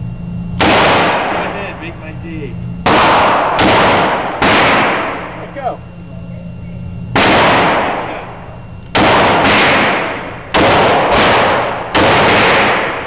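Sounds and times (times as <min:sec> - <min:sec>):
revolver shots echoing: 0:00.6 - 0:01.6, 0:02.8 - 0:05.4, 0:07.1 - 0:13.0.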